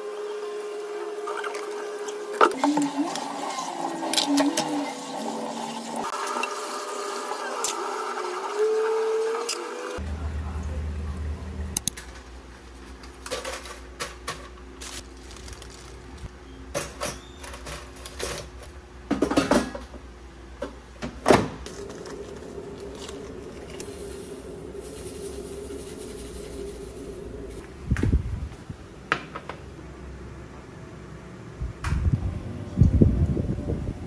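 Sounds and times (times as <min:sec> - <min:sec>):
dishware and plastic clattering: 0:13.1 - 0:14.6
steady hum: 0:20.0 - 0:29.0.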